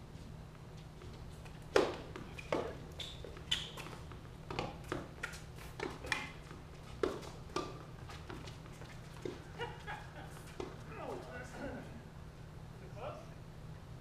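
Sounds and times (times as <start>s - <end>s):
tennis balls struck and bouncing: 1.5s - 9.5s, 10.3s - 10.9s.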